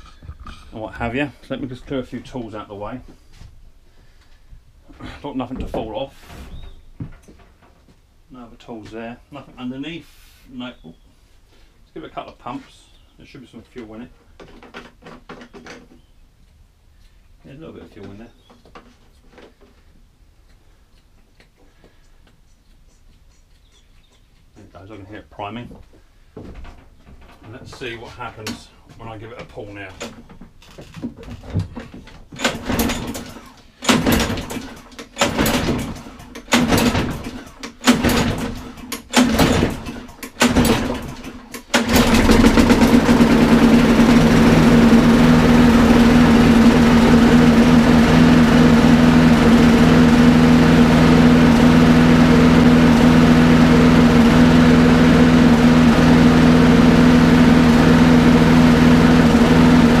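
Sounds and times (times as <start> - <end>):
recoil starter pulls: 29.4 - 60.0
lawnmower engine running: 31.8 - 60.0.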